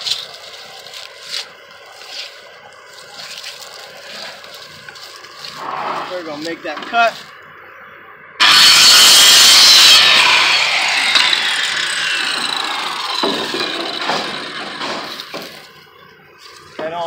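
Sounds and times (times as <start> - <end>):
circular saw cutting wood: 8.4 - 15.8
saw blade whine winding down: 8.4 - 16.0.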